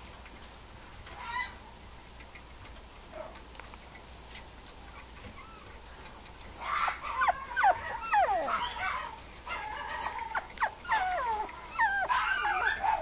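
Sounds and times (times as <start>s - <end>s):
puppy whining: 3.6s - 13.0s.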